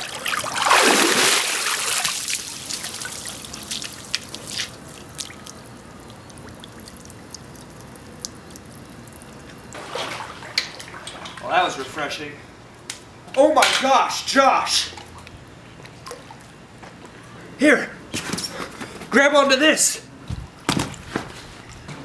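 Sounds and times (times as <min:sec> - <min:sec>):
water pouring and splashing: 0:00.0 - 0:11.4
water drips and small splashes: 0:00.0 - 0:11.5, 0:14.9 - 0:16.8.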